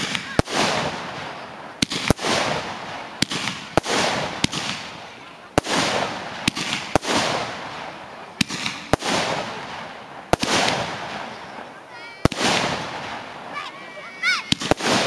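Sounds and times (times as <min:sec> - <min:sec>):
fireworks hiss: 0:00.0 - 0:15.0
fireworks reports: 0:00.0 - 0:15.0.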